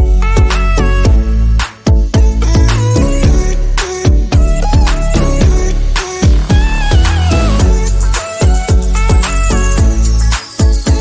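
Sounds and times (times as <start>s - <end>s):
background music with beat: 0.0s - 11.0s
deep kick drum hits: 1.9s - 3.5s, 4.1s - 7.8s.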